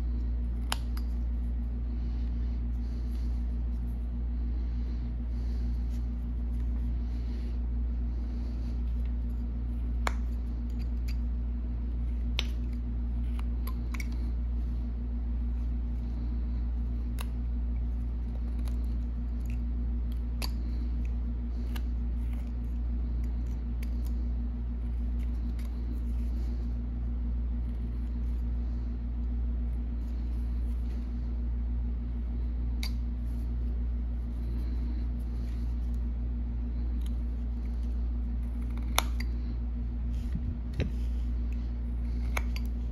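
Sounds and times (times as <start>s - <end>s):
steady low hum: 0.0s - 42.9s
knife blade carving wood: 38.4s - 39.4s.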